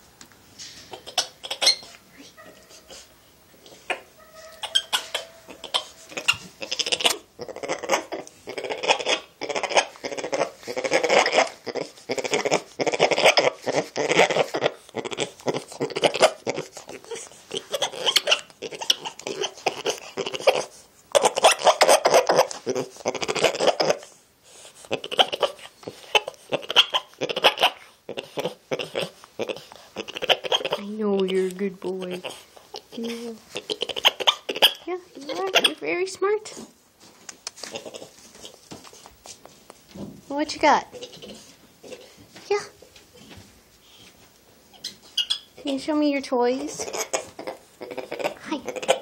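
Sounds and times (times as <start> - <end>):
monkey rapid pulsed calls: 3.9 - 7.2.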